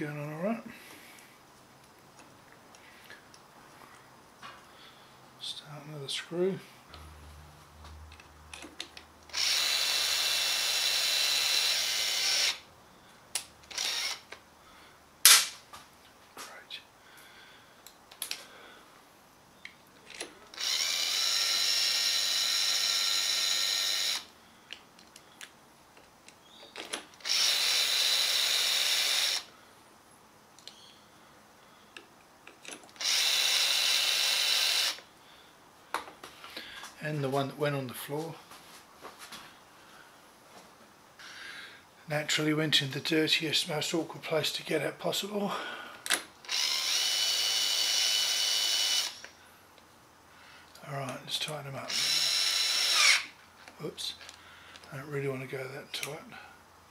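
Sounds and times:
drill motor whining: 9.3 - 12.6, 13.7 - 14.3, 20.5 - 24.3, 27.2 - 29.5, 33.0 - 35.0, 46.4 - 49.3, 51.9 - 53.3.

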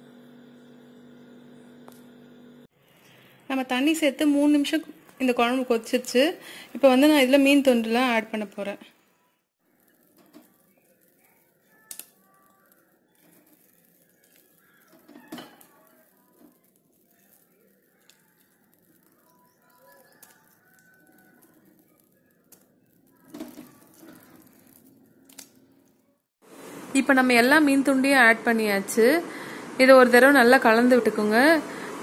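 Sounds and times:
faint chirps: 9.0 - 25.3.

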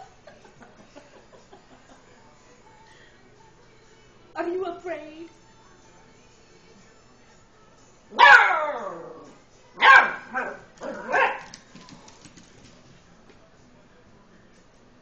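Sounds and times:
puppy barking: 8.2 - 9.0, 9.8 - 11.6.

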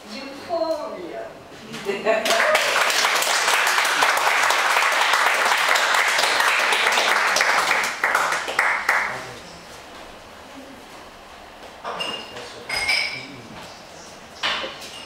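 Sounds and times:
small audience applauding: 2.2 - 9.4.

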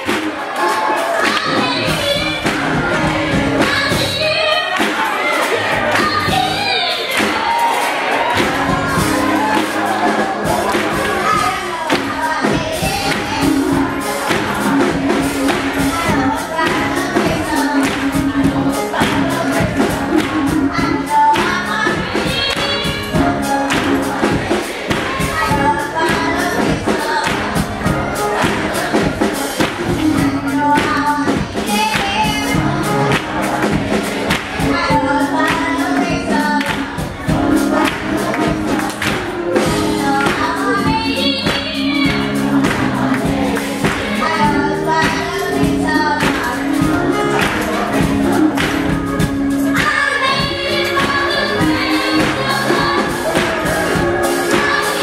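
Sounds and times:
hand-clapping: 0.0 - 1.6, 4.7 - 6.3, 7.1 - 7.7, 9.4 - 12.2, 13.1 - 13.4, 17.8 - 18.2, 20.2 - 20.5, 22.5 - 22.8, 24.9 - 25.3, 27.2 - 27.6, 29.6 - 30.2, 31.9 - 32.3, 33.1 - 34.7, 35.4 - 37.0, 37.8 - 39.4, 47.3 - 49.0
children's choir singing gospel: 0.0 - 55.0
instrumental accompaniment with beat: 0.0 - 55.0.

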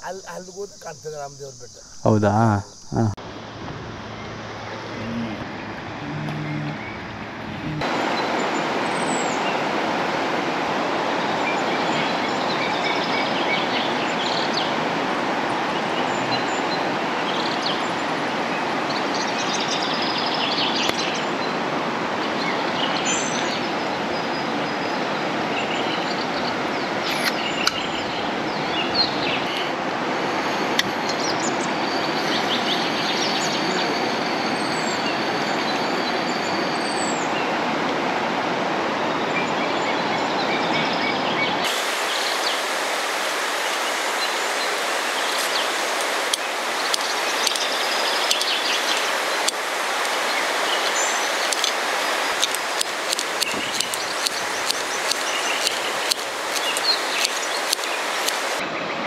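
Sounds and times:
birds chirping: 0.0 - 3.2, 4.0 - 9.7, 22.3 - 37.5, 39.4 - 58.6
steady rushing noise: 41.6 - 58.8
sharp clicks: 45.4 - 50.9, 51.5 - 58.6.

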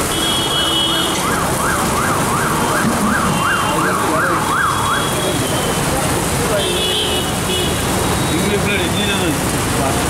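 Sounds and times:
street noise: 0.0 - 10.0
emergency vehicle siren wailing: 1.0 - 6.0.

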